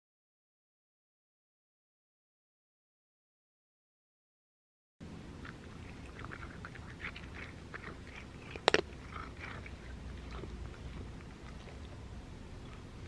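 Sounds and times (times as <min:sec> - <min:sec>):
cat crunching and chewing kibble: 0:05.3 - 0:13.0.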